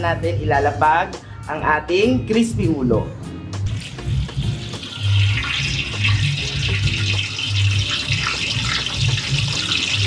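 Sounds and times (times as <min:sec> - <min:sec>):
hot oil sizzling: 0:03.7 - 0:10.0.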